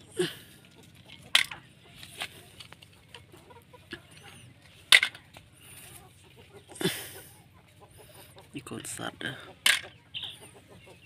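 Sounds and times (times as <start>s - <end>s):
toy cars clattering in plastic basket: 0.9s - 2.9s, 4.9s - 5.3s, 9.6s - 9.9s.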